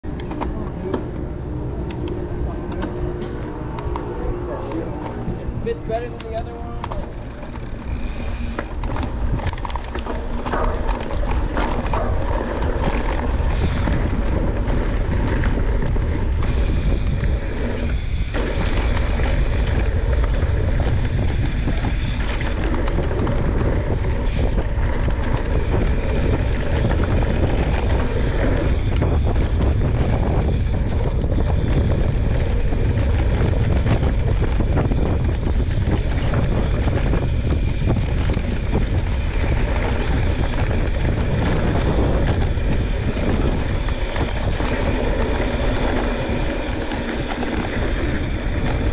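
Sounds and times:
bike tyres rolling on dirt trail: 0:00.0 - 0:48.9
wind buffeting microphone: 0:00.0 - 0:48.9
bike clattering over bumps: 0:06.0 - 0:48.9.

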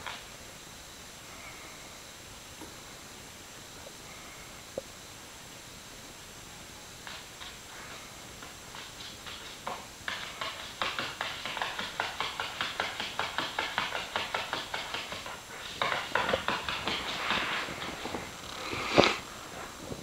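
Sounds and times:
puppy claws scratching wooden floor: 0:07.0 - 0:19.7.

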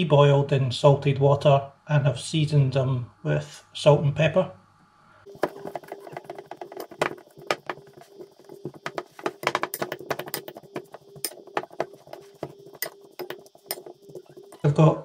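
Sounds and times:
faint steady hum: 0:00.0 - 0:15.0
fork tapping glass bowl: 0:09.4 - 0:14.5.

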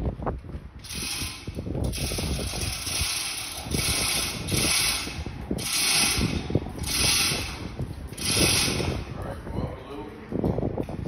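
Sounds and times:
ratcheting clicks: 0:00.8 - 0:09.0
hoist chain rattling: 0:00.8 - 0:09.1.

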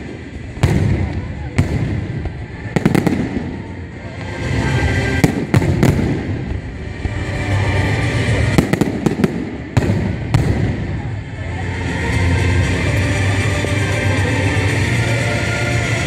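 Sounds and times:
sharp firework bangs: 0:00.0 - 0:03.7, 0:05.2 - 0:07.2, 0:08.4 - 0:11.1
fireworks bursting: 0:00.0 - 0:11.4.

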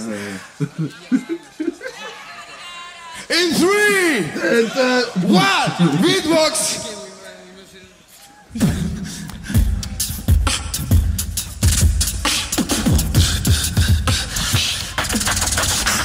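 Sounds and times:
beatboxing into a microphone: 0:08.5 - 0:16.0.

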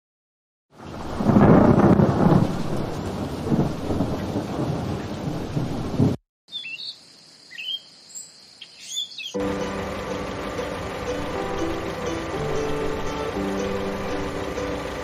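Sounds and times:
heavy rain: 0:00.8 - 0:06.2, 0:09.4 - 0:15.0
thunder rumble: 0:00.8 - 0:06.2
faint bird chirps: 0:06.5 - 0:09.4.

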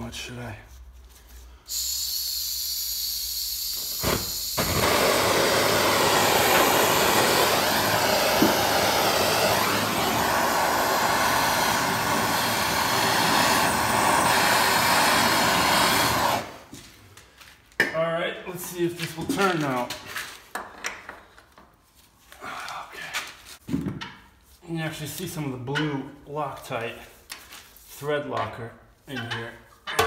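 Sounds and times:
blowtorch gas hissing: 0:01.7 - 0:16.7
blowtorch flame burning: 0:01.8 - 0:16.7
blowtorch click: 0:03.8 - 0:16.5.

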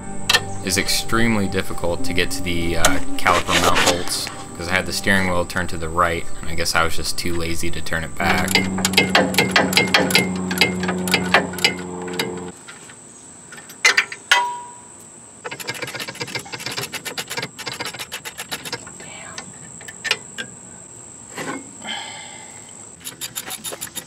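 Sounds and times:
low steady hum: 0:00.0 - 0:16.8
sharp metal knocks: 0:08.2 - 0:12.5, 0:13.6 - 0:14.8
hand ratchet clicking: 0:08.3 - 0:12.4, 0:15.5 - 0:18.9, 0:23.0 - 0:24.0.

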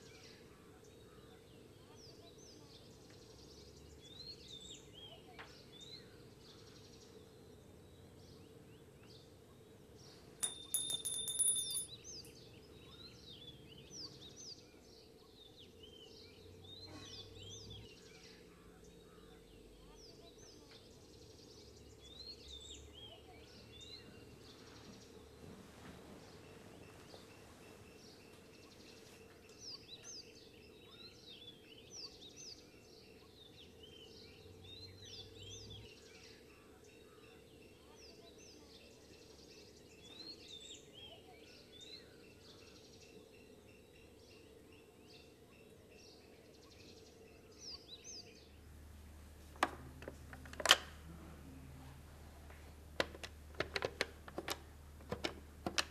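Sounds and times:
birds chirping: 0:00.0 - 0:55.9
low steady hum: 0:38.9 - 0:55.9.

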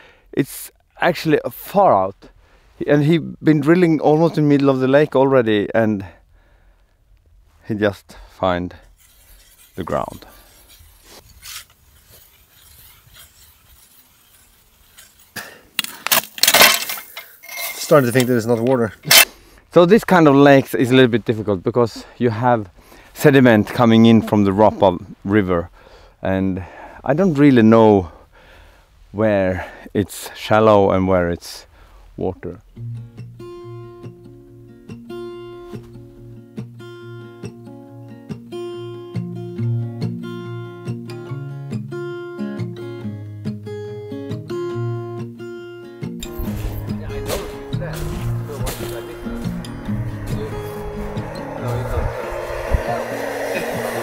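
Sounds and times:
ice auger scraping and grinding: 0:08.8 - 0:19.4, 0:46.2 - 0:54.0
acoustic guitar playing: 0:32.6 - 0:54.0.

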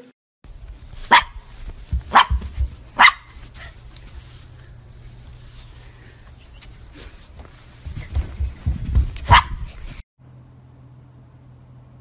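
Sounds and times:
small dog barking: 0:01.1 - 0:01.4, 0:02.1 - 0:03.4, 0:09.2 - 0:09.7.

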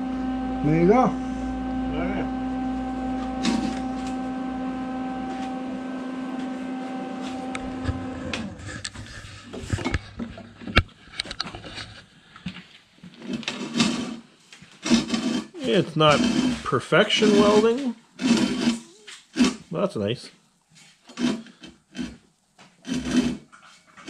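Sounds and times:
machine hum: 0:00.0 - 0:10.8, 0:14.8 - 0:18.8.

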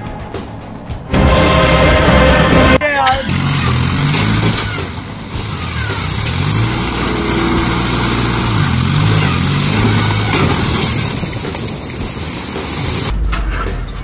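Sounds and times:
tractor engine running: 0:02.2 - 0:13.3
water gushing: 0:03.4 - 0:13.1.

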